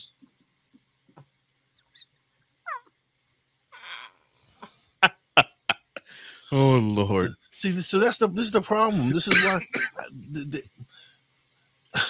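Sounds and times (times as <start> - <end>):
man laughing breathlessly: 5.4 - 6.5
breathy gasp: 6.0 - 6.5.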